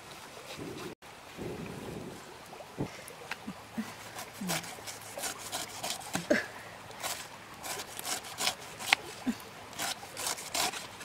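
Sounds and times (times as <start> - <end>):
cleaver scraping pineapple skin: 4.1 - 6.4, 7.0 - 11.0.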